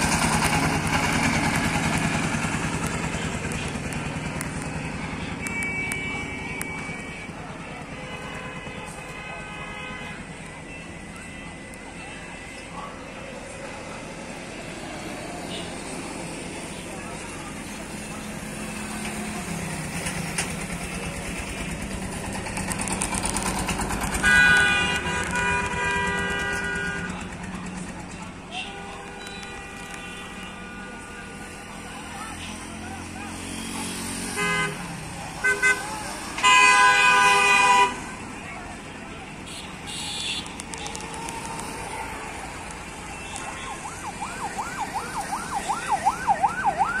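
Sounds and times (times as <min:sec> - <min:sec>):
long loud horn blast: 0:23.8 - 0:27.3, 0:34.2 - 0:38.2
vehicle siren wailing: 0:40.8 - 0:47.0.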